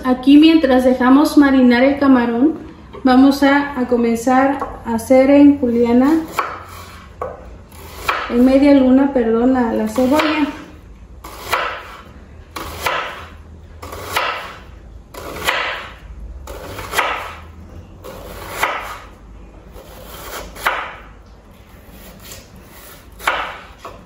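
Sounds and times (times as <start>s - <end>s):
knife slicing onion on wooden board: 6.2s - 8.5s, 11.2s - 17.4s, 18.0s - 19.1s, 19.7s - 21.0s, 21.8s - 24.0s.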